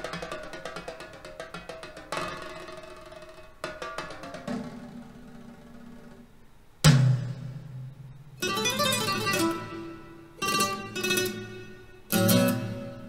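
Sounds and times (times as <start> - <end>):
plucked strings with percussion: 0.0 - 4.8, 8.4 - 13.0.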